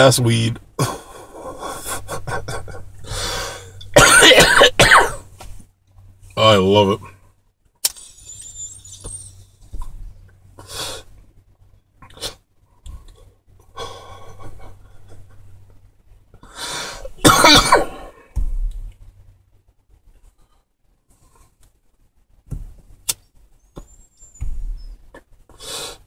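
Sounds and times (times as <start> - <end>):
man coughing: 3.9 - 5.2, 17.2 - 18.2
thin high hiss from pipe: 7.8 - 9.5.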